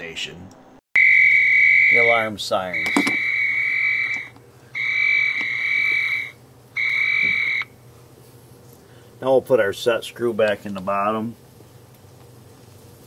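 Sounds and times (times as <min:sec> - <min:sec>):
high-pitched electronic alarm tone: 0:01.0 - 0:07.7.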